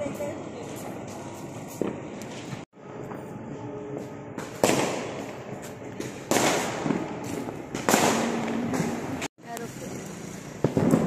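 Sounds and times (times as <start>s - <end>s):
fireworks bangs: 4.4s - 11.0s.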